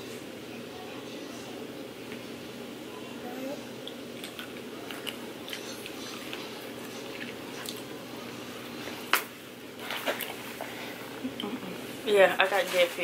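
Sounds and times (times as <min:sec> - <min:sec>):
chewing clicks and smacks: 0:03.8 - 0:07.9.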